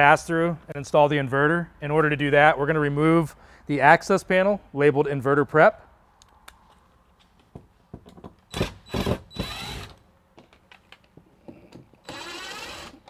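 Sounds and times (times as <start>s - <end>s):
cordless drill running: 8.5s - 10.0s, 12.0s - 13.0s.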